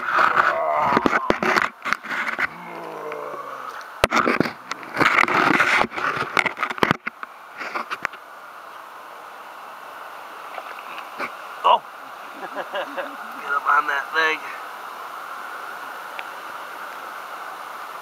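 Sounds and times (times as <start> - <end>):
creek water rushing: 0.0 - 18.0
person exclaiming: 0.4 - 1.4, 2.5 - 3.8.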